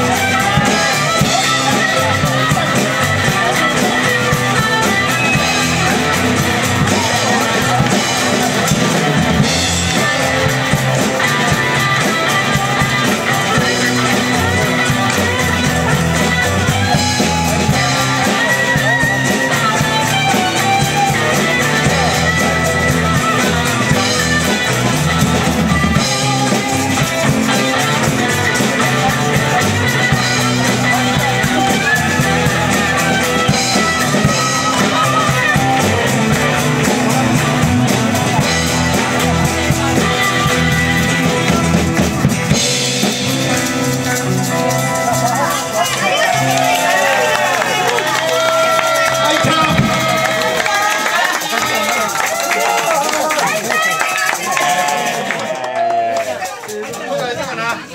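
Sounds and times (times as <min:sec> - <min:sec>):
live rock band playing: 0:00.0 - 0:57.9.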